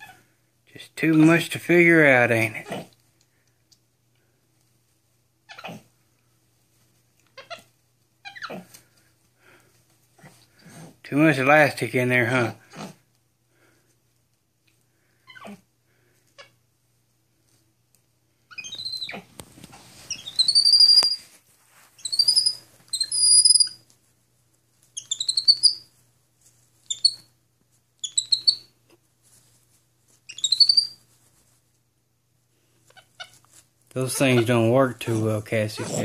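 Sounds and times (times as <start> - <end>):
monkey chirping: 18.5 - 19.2, 20.1 - 21.2, 22.0 - 23.8, 25.0 - 25.9, 26.9 - 27.3, 28.0 - 28.7, 30.3 - 31.0, 35.8 - 36.0
bedsheets rustling: 21.2 - 22.0.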